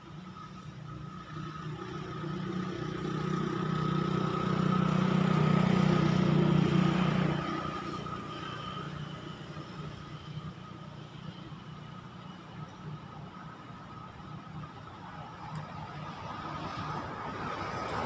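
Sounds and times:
motor vehicle passing: 1.8 - 10.6.

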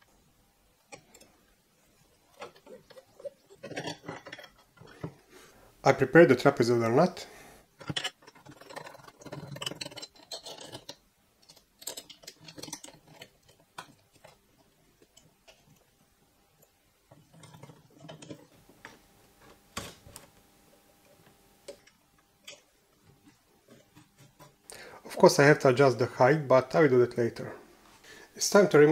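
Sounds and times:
small metal parts clicking: 0.8 - 5.2, 7.8 - 19.0.

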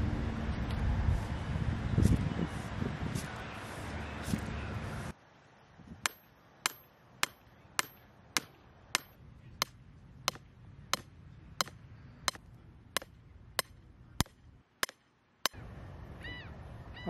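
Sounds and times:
hammer pounding metal rod: 6.1 - 10.4, 11.0 - 12.4, 13.0 - 15.0.

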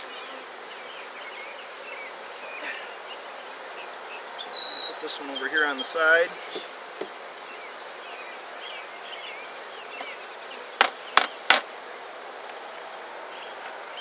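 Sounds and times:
bees buzzing: 0.0 - 14.0
wooden knocks: 10.8 - 11.7.

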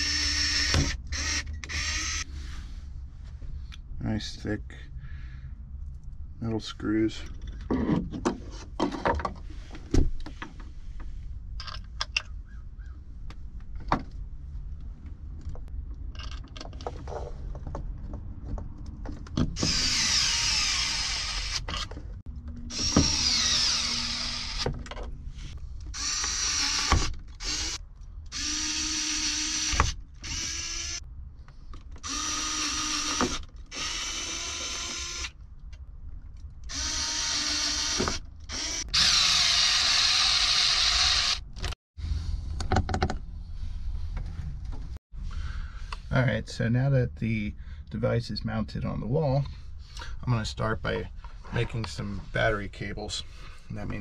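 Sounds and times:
power drill driving screws: 0.0 - 2.2, 19.6 - 21.9, 22.7 - 24.7, 25.9 - 31.0, 32.0 - 35.4, 36.7 - 41.8.

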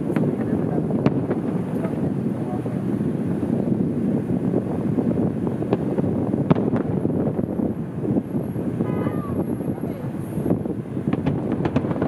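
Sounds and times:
distant fireworks cracks: 0.0 - 12.0
wind on microphone: 0.0 - 12.0.

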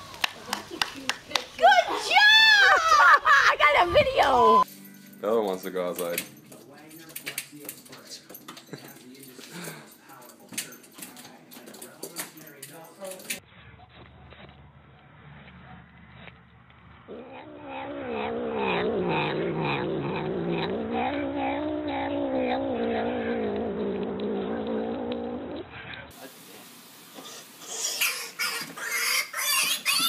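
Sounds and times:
cat crying: 17.1 - 23.5, 27.7 - 30.0
cat growling: 17.1 - 26.1.

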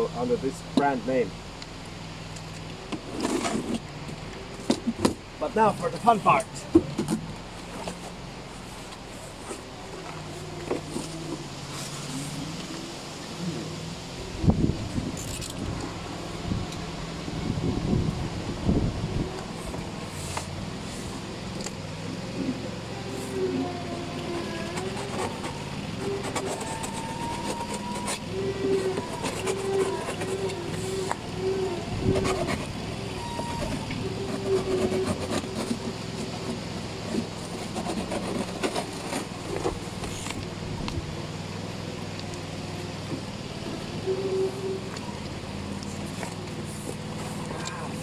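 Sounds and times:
tractor engine running: 0.0 - 48.0
cardboard box flaps scraping: 3.0 - 3.9, 6.8 - 12.5, 22.4 - 40.4.

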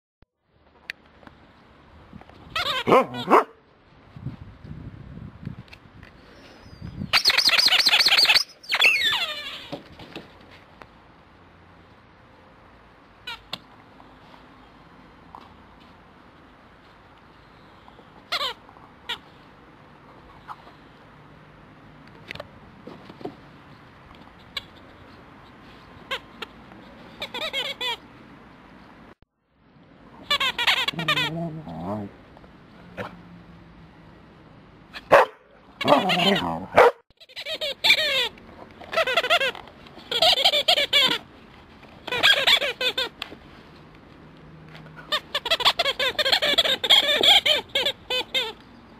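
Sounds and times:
rubber squeaky toy squeaking: 2.5 - 3.3, 7.1 - 9.8, 13.2 - 13.6, 18.2 - 19.3, 24.4 - 25.0, 26.0 - 28.1, 30.2 - 32.0, 35.8 - 41.3, 41.9 - 43.3, 45.0 - 48.6.

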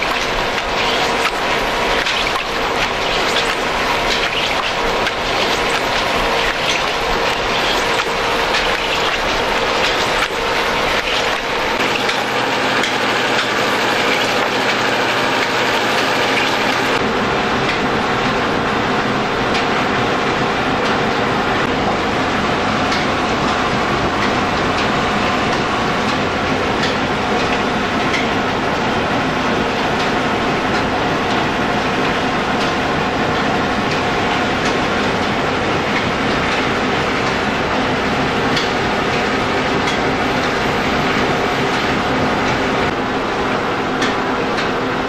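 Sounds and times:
mill drive belt and pulley turning: 0.0 - 45.0.

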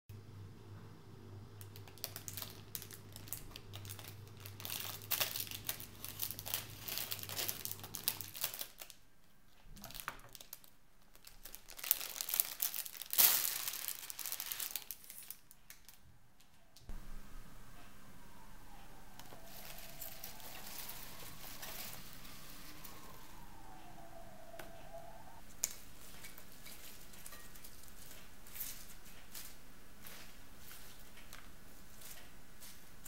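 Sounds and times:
plastic film crinkling: 1.6 - 9.0, 9.8 - 16.0.

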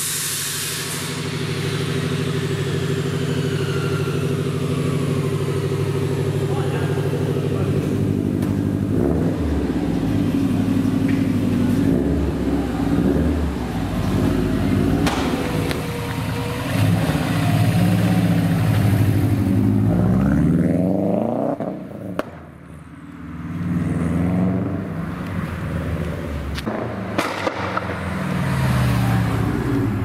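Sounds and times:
loud car exhaust engine: 0.0 - 30.0
exhaust cracks: 0.3 - 20.4, 25.2 - 28.1.

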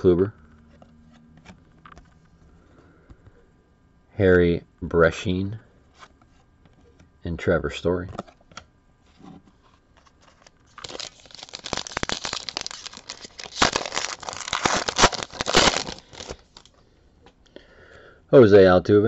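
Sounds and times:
foil wrapper crinkling: 9.9 - 16.7.

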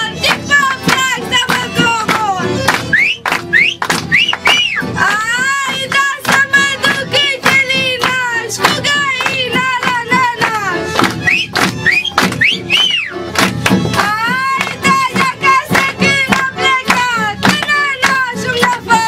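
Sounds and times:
woman singing folk song: 0.0 - 3.0, 4.5 - 11.3, 13.8 - 19.0
regular percussive beat: 0.0 - 19.0.

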